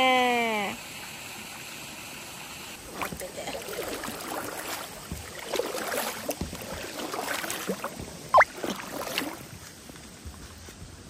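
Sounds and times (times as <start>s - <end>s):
paddle strokes in water: 2.8s - 11.0s.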